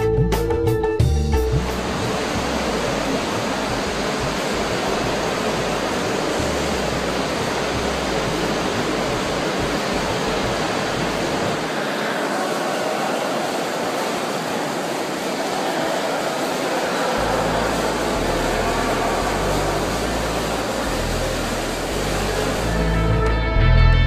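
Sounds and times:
music: 0:00.0 - 0:11.2, 0:17.2 - 0:24.0
steady rushing hiss: 0:01.4 - 0:23.2.

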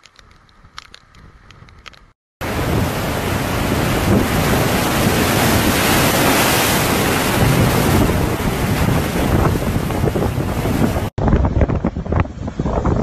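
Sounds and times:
wind buffeting microphone: 0:00.1 - 0:13.0
water surging across concrete: 0:02.4 - 0:11.1
sea waves crashing over wall: 0:02.4 - 0:11.2.

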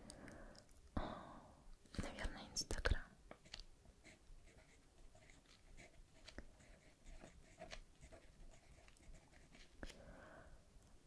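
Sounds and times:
pen scratching on paper: 0:03.4 - 0:09.8.

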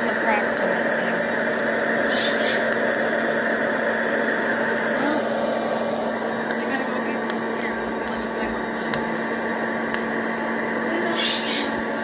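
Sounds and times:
fan motor whirring hum: 0:00.0 - 0:12.0
coffee beans popping clicks: 0:02.6 - 0:03.1, 0:05.9 - 0:09.1, 0:09.8 - 0:10.1.

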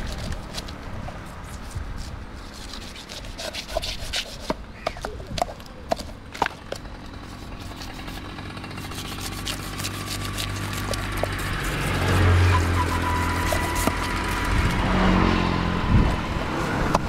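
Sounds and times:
knife scraping fish scales: 0:00.0 - 0:05.0, 0:07.1 - 0:14.8.

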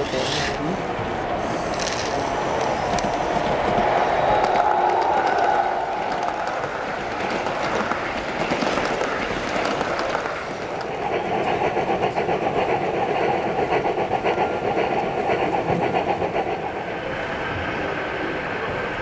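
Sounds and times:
model coaches rolling: 0:00.0 - 0:12.5
model steam locomotives pulsing: 0:00.0 - 0:19.0.

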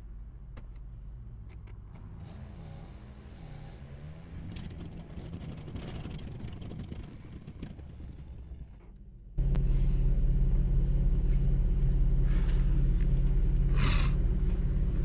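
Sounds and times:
car engine idling: 0:04.1 - 0:15.0.

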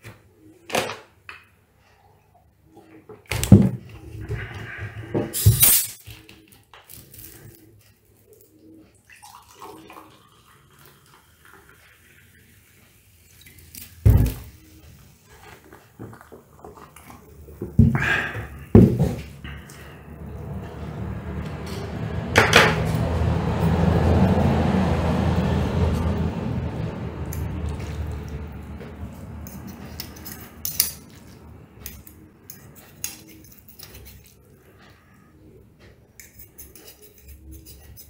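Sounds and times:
low rumbling noise: 0:17.9 - 0:30.1.

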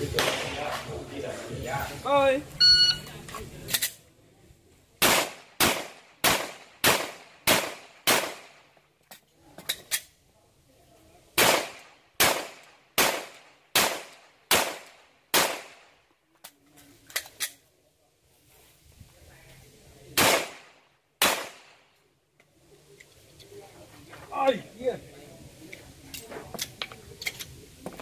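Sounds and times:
pistol shots: 0:00.0 - 0:00.8, 0:05.0 - 0:08.6, 0:11.4 - 0:15.9, 0:20.2 - 0:21.8.

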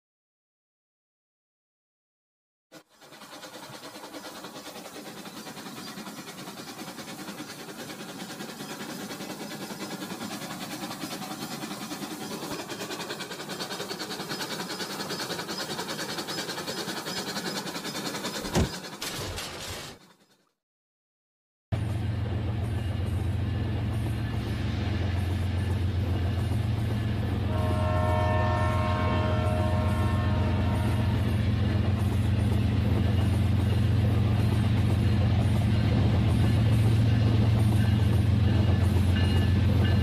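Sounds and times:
toy train wheels clicking on track: 0:02.8 - 0:20.3.

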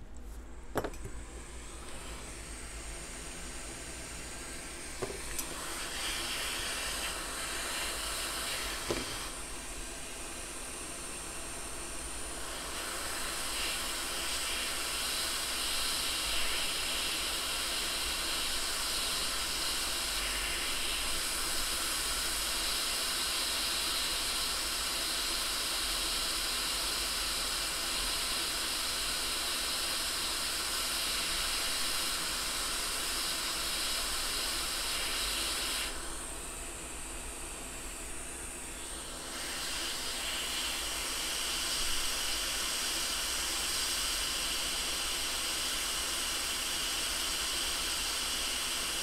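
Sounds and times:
hot air blower hissing: 0:00.6 - 0:49.0.

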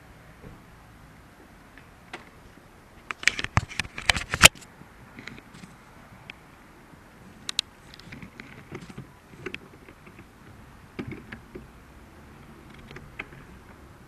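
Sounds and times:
bike clicks and rattles: 0:03.0 - 0:05.7, 0:07.4 - 0:11.6.

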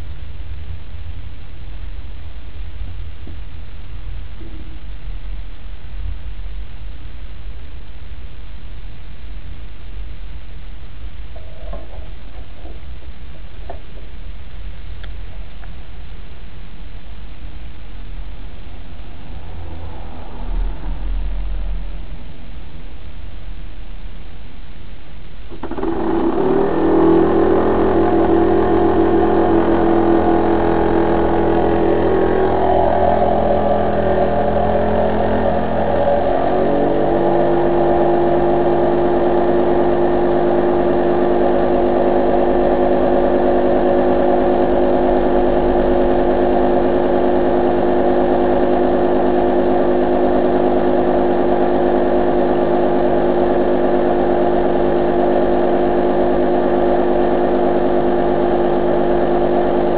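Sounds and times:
small steam engine running: 0:25.6 - 0:59.9.

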